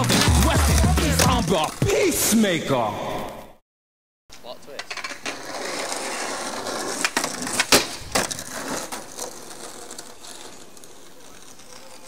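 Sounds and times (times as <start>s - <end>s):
skateboard wheels rolling on asphalt: 0.0s - 2.0s, 4.7s - 12.0s
skateboard clacking on ground: 4.7s - 12.0s.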